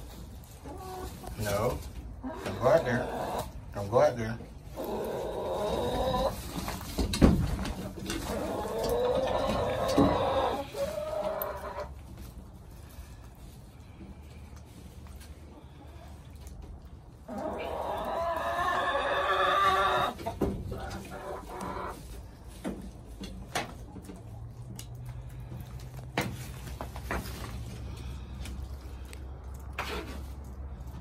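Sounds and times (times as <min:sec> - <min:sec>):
chickens clucking: 0:00.0 - 0:28.8
chicken drawn-out call: 0:08.3 - 0:11.9, 0:17.3 - 0:22.0.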